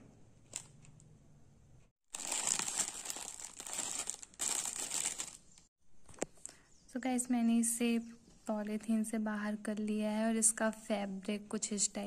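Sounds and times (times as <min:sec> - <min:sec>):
plastic packaging crinkling: 0:02.1 - 0:05.7.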